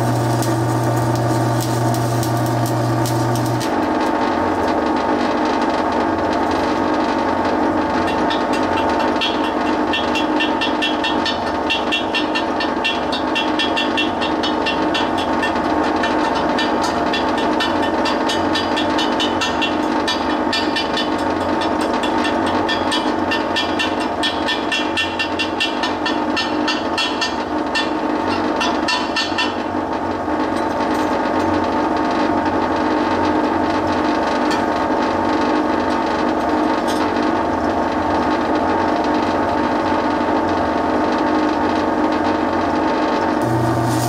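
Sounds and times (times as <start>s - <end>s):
welder rattling mechanical racket: 0.0s - 4.7s, 43.4s - 44.0s
low hum of welding arc: 0.0s - 12.2s, 43.3s - 44.0s.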